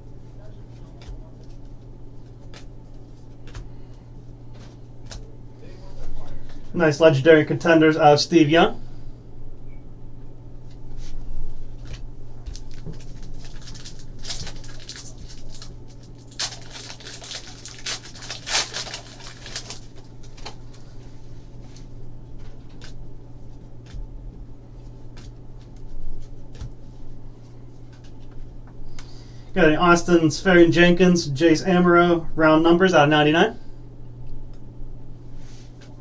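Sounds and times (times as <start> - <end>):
steady low hum: 0.0 - 36.0
trading cards rustling and flicking: 0.7 - 5.3, 10.7 - 23.0, 24.7 - 27.1, 27.7 - 29.2.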